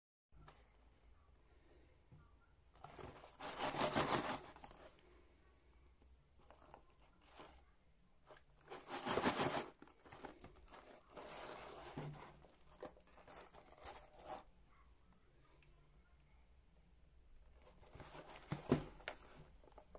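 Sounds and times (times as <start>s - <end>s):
cardboard box rustling and scraping: 2.8s - 4.8s, 8.7s - 12.9s, 17.7s - 19.9s.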